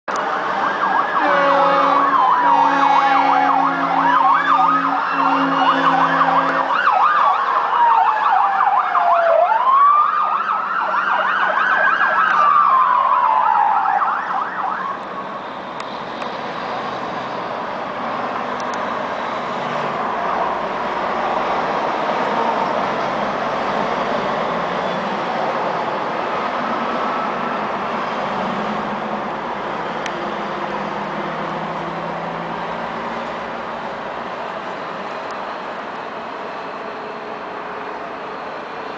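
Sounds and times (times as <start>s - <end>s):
wailing siren: 0.1s - 15.9s, 25.8s - 28.1s
fast yelping siren: 0.6s - 15.0s
vehicle horn: 1.2s - 6.7s
highway traffic hiss: 14.4s - 38.9s.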